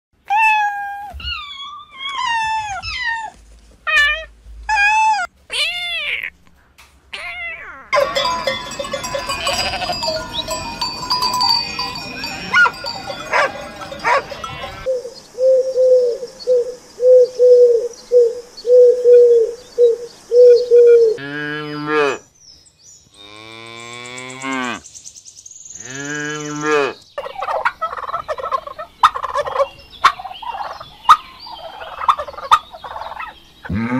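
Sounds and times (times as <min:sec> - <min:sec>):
kittens mewing: 0:03.9 - 0:06.4, 0:07.1 - 0:08.6, 0:09.2 - 0:10.2
long loud livestock calls: 0:07.9 - 0:14.9, 0:33.7 - 0:33.9
sheep bleating: 0:08.0 - 0:10.4, 0:11.6 - 0:14.9.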